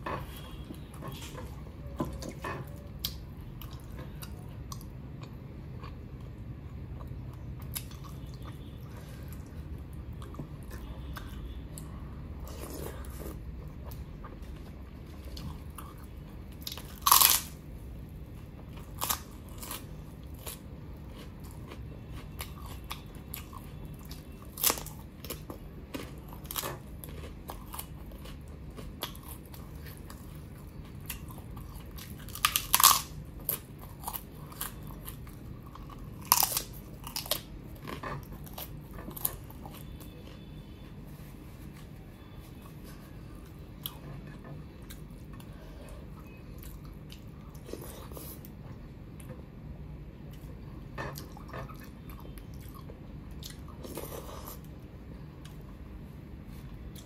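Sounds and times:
crisp wafer crunching: 0:16.6 - 0:17.6, 0:18.8 - 0:40.4
chewing and mouth sounds: 0:18.3 - 0:40.9.

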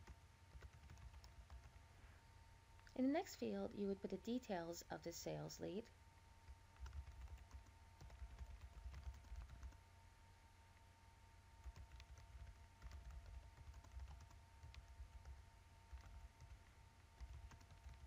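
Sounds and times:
typing on keyboard: 0:00.0 - 0:01.8, 0:06.5 - 0:09.8, 0:11.6 - 0:18.0
steady low hum: 0:00.0 - 0:18.0.

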